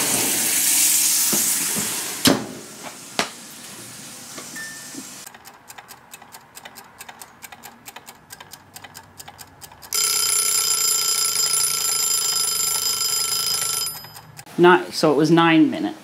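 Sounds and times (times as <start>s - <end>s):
timer bell ringing: 4.6s - 5.0s, 9.9s - 14.4s
kitchen timer ticking: 5.2s - 14.5s.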